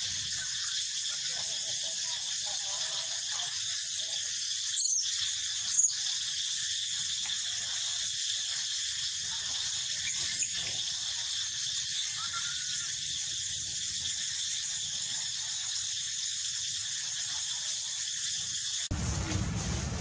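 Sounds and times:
insects droning: 0.0 - 20.0
monkey squealing: 12.0 - 13.1.

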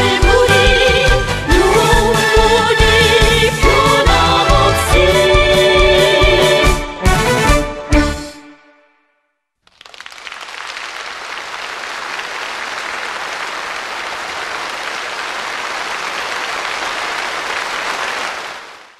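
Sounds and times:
audience applauding: 9.7 - 18.9.

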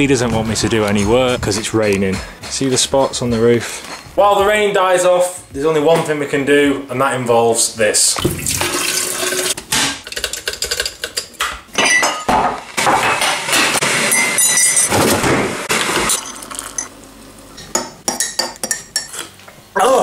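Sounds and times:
hot water pouring into mug: 8.3 - 9.6.

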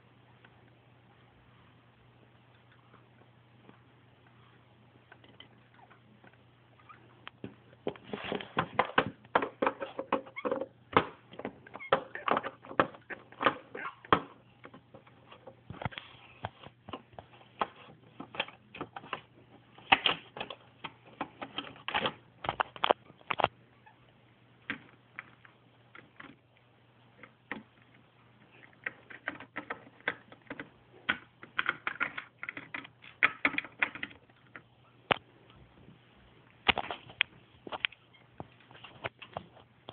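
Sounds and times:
low steady hum: 0.0 - 39.9
plastic toys clicking on hard surface: 28.8 - 34.2.

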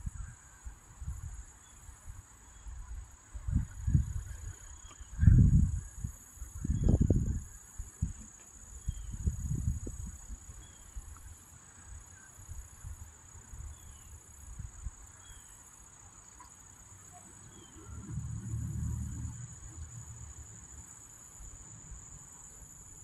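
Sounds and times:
insects trilling: 0.0 - 23.0
low rumble: 17.8 - 20.8.

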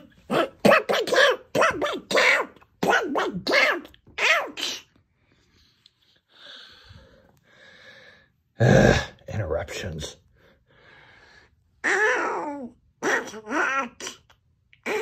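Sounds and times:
person making wordless character noises: 0.0 - 5.0.

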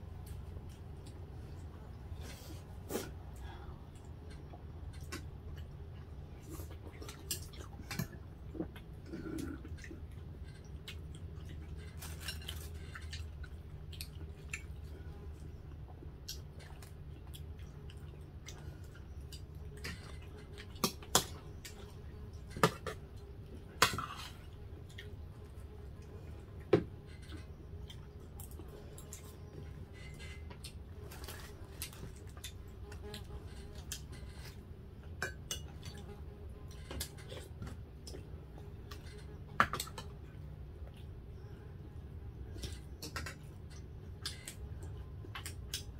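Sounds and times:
steady low hum: 0.0 - 45.9
chewing: 3.0 - 34.6.

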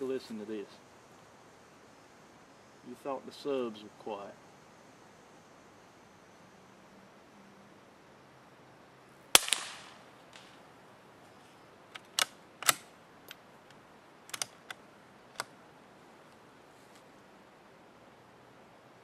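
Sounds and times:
rifle shot with echo: 9.3 - 10.5
rifle bolt metallic clicks: 11.9 - 13.4, 14.3 - 14.8.

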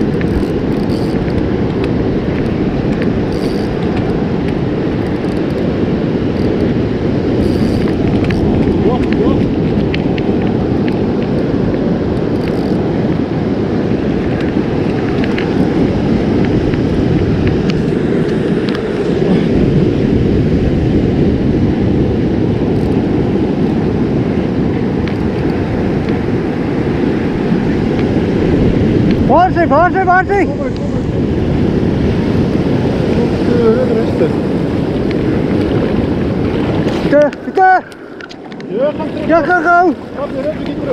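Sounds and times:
surf breaking: 0.0 - 40.9
wind noise on microphone: 0.0 - 40.9.

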